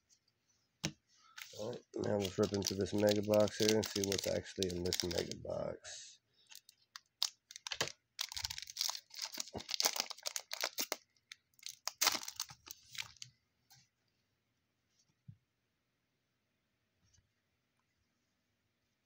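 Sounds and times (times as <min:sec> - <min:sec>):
foil wrapper tearing and crinkling: 0:01.4 - 0:05.4, 0:06.5 - 0:13.2.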